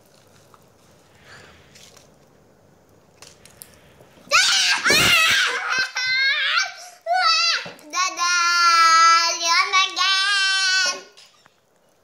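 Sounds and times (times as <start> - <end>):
girls shrieking: 4.3 - 7.7.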